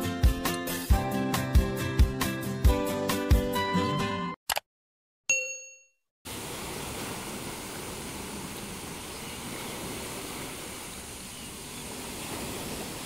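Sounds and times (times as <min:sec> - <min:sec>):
sea waves on rocky shore: 0:06.3 - 0:13.0.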